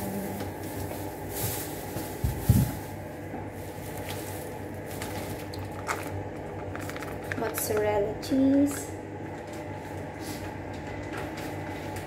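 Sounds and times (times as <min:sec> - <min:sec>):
plastic bag rustling: 0:00.0 - 0:07.8
steady hum: 0:00.0 - 0:12.0.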